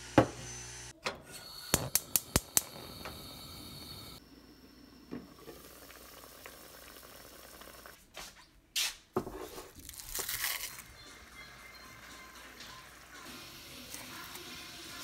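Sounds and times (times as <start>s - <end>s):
pot bubbling: 1.5s - 8.0s
plastic bag crinkling: 9.8s - 10.9s.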